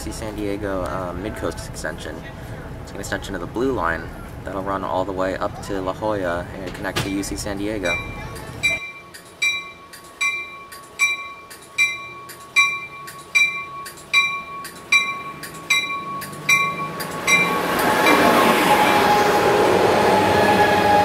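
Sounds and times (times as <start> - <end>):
train cars rumbling past: 0.0 - 21.0
train bell ringing: 7.1 - 19.6.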